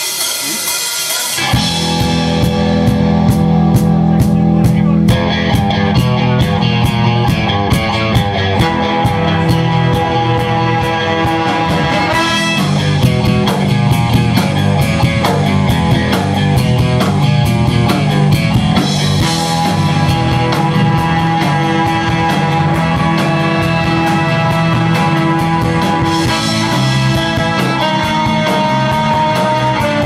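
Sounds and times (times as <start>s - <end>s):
bass guitar: 0.0s - 30.0s
drum kit beat: 0.0s - 30.0s
electric guitars: 0.0s - 30.0s
saxophone: 9.5s - 13.3s, 19.3s - 30.0s
trumpet: 10.6s - 13.2s, 19.6s - 30.0s.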